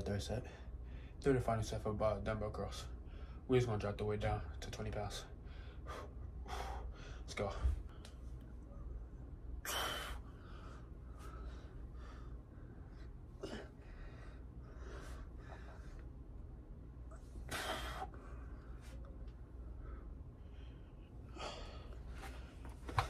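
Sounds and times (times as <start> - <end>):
man breathing hard: 5.3 - 8.2, 9.6 - 16.3, 17.4 - 19.0, 19.6 - 22.6.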